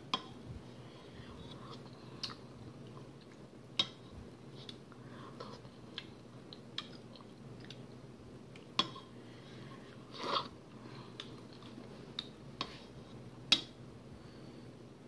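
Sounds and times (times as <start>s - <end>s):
chewing and smacking: 5.4s - 7.9s.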